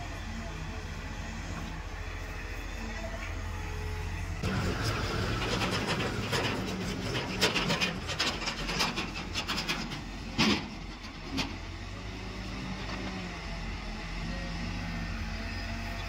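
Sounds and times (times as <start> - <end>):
diesel engine running: 0.0 - 16.0
soil and stones clattering on metal: 4.4 - 11.6.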